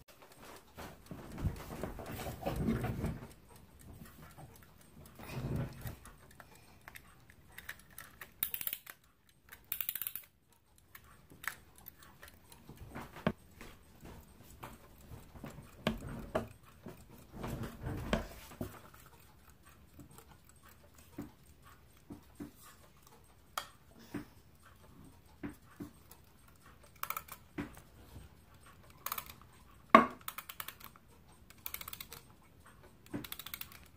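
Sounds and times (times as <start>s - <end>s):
clock case clicking and knocking: 29.9s - 30.5s.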